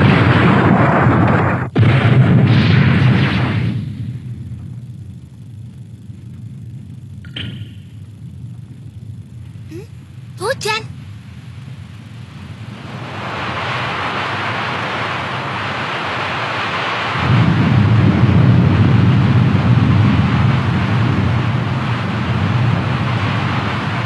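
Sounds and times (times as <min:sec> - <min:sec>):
deep thunder rumbling: 0:00.0 - 0:07.2, 0:11.0 - 0:24.0
heavy rain pouring: 0:12.7 - 0:24.0.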